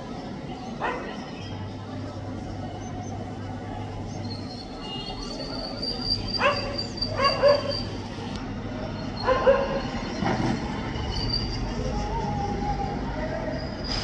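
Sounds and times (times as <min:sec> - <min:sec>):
dog barking: 0:06.4 - 0:07.8, 0:09.2 - 0:09.9.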